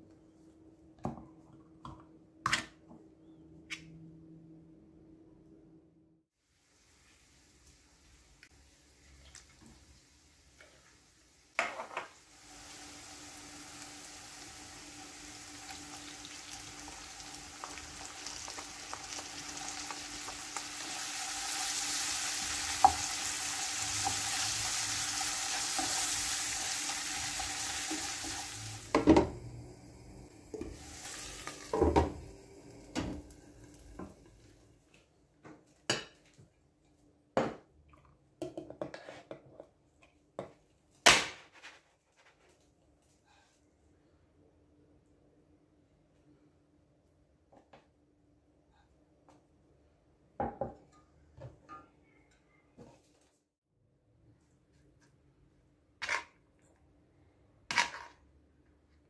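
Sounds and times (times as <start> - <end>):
food sizzling in a frying pan: 6.4 - 34.4.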